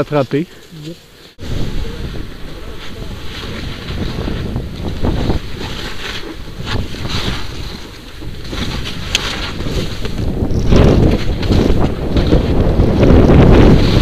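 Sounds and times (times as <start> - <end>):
snow hissing and crackling: 0.2 - 14.0
wind buffeting microphone: 1.4 - 14.0.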